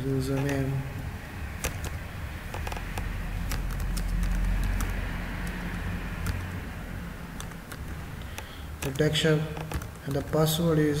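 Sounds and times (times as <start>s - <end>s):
steady low hum: 0.0s - 11.0s
keyboard key clicks: 1.6s - 6.5s, 7.4s - 10.2s.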